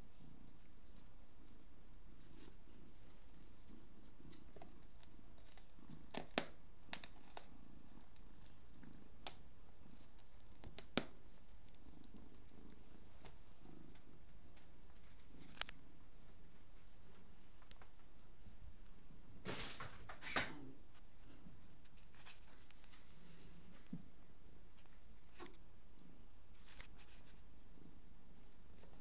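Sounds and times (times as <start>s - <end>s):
cat purring: 6.9s - 17.0s.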